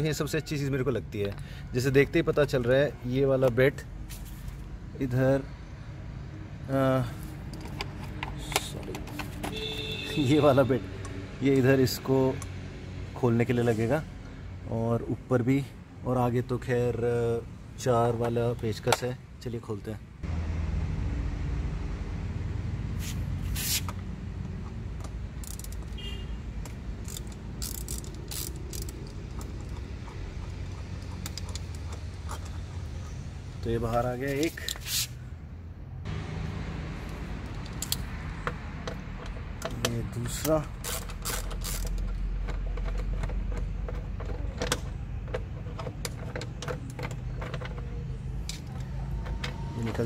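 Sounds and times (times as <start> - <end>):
screwdriver clicks and metal taps: 7.4 - 9.6, 23.9 - 32.6, 37.1 - 50.0
screwdriver clicks and rasps: 25.0 - 26.0, 26.6 - 32.6, 38.9 - 43.7.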